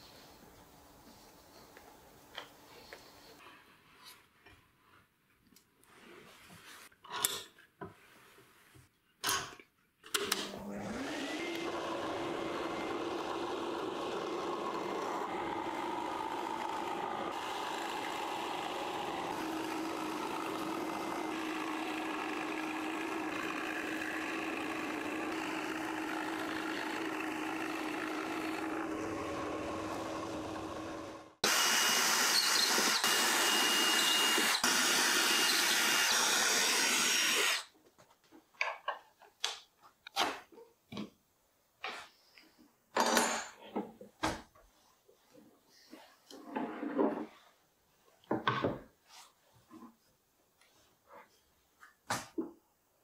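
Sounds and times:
drill press running: 0:10.4 - 0:37.7
loud bright machine noise: 0:10.9 - 0:37.6.

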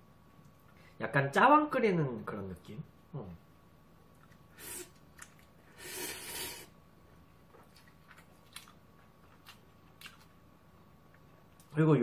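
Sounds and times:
chewing: 0:04.2 - 0:05.6, 0:07.4 - 0:10.4
slurping noodles: 0:04.6 - 0:05.0, 0:05.6 - 0:06.8.

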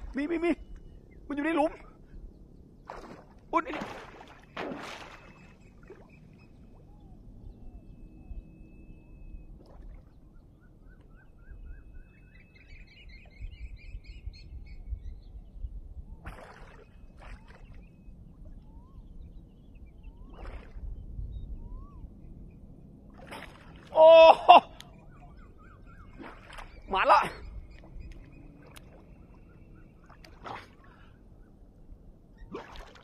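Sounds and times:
bird whistling and chirping: 0:05.2 - 0:09.5, 0:10.3 - 0:15.3, 0:16.1 - 0:22.6, 0:24.8 - 0:28.6.

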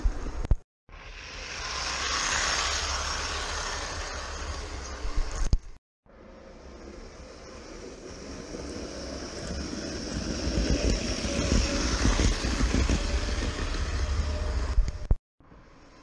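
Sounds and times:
model train motor hum: 0:01.0 - 0:05.0.

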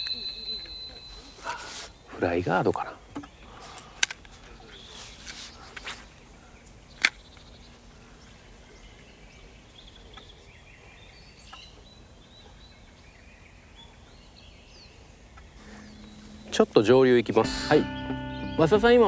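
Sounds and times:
faint bird calls: 0:00.0 - 0:18.6
brief rustling: 0:03.6 - 0:06.1.

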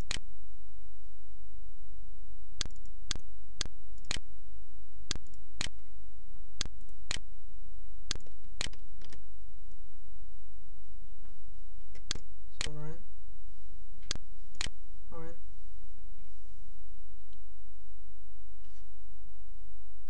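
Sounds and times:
low electrical hum: 0:00.0 - 0:20.0
mouse and keyboard clicks: 0:02.6 - 0:03.2, 0:05.1 - 0:05.8, 0:08.1 - 0:09.2.

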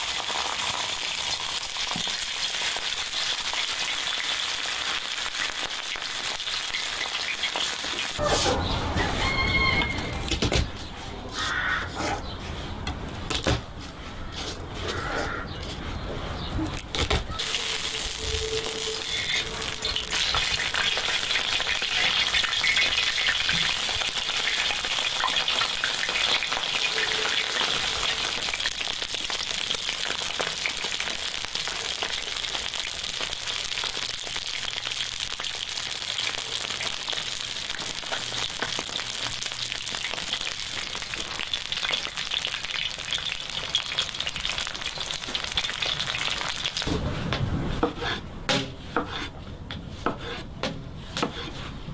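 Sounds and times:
steaks sizzling in oil: 0:00.0 - 0:08.2, 0:17.4 - 0:46.8.

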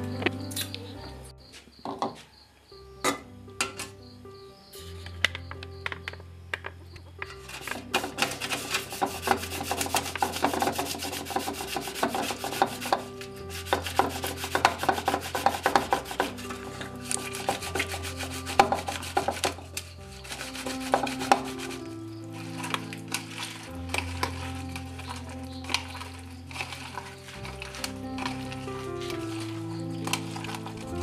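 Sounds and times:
background music: 0:00.0 - 0:31.0
tomatoes scrubbed in colander: 0:07.4 - 0:31.0.

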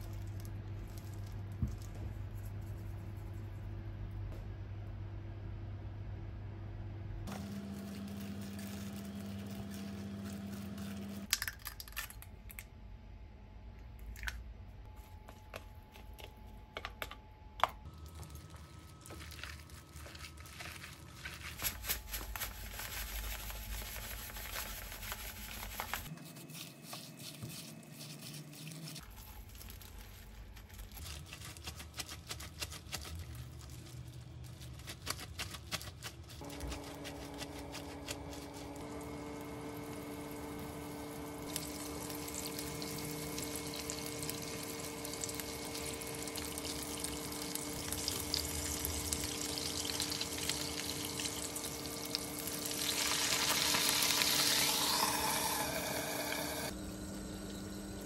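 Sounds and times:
plastic gloves crinkling: 0:00.0 - 0:03.4, 0:07.3 - 0:12.4, 0:17.8 - 0:55.6
meat squishing: 0:17.8 - 0:55.5
low hum: 0:36.4 - 0:58.0.

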